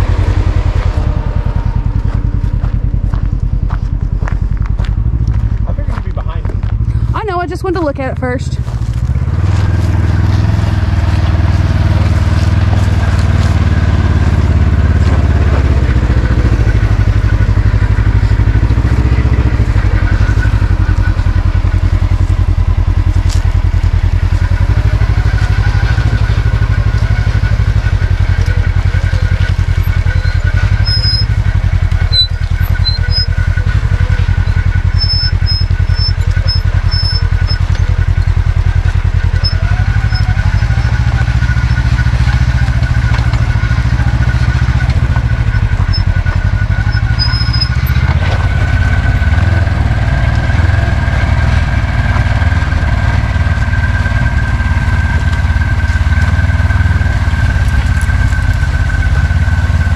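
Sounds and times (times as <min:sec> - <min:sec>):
utility vehicle engine running low: 0:00.0 - 0:59.9.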